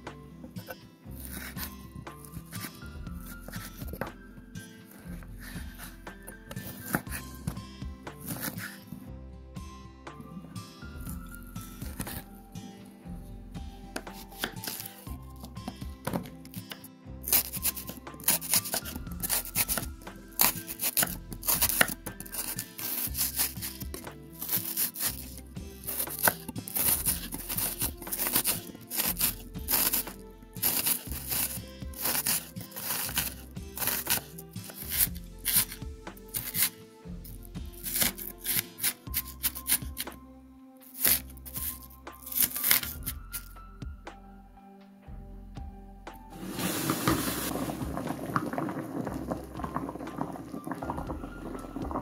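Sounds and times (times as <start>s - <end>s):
background music: 0.0s - 52.0s
knife dicing onion on cutting board: 8.2s - 8.8s, 14.0s - 15.0s, 25.9s - 35.8s, 36.4s - 36.8s, 37.8s - 40.1s, 41.0s - 43.5s.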